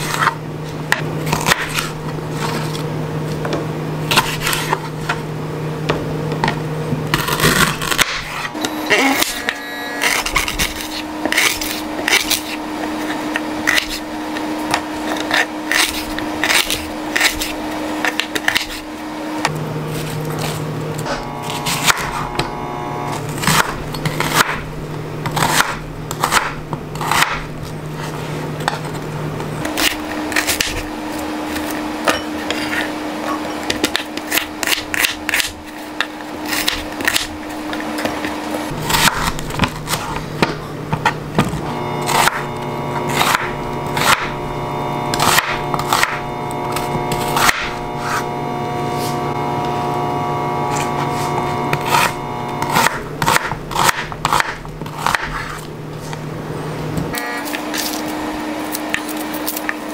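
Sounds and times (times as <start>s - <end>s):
blade scraping board: 0.0s - 5.2s, 6.4s - 56.2s
knife chopping on wooden board: 9.2s - 19.6s, 21.0s - 22.6s, 23.4s - 27.5s, 33.7s - 44.4s, 45.1s - 48.2s, 50.7s - 55.6s.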